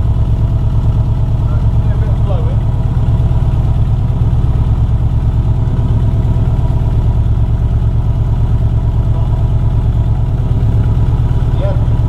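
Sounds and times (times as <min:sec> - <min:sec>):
boxer engine idling: 0:00.0 - 0:12.0.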